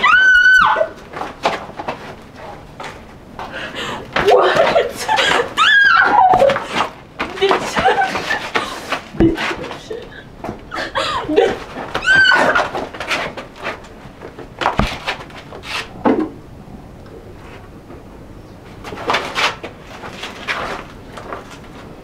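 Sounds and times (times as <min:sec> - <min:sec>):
thuds and knocks on concrete: 0:14.6 - 0:15.3.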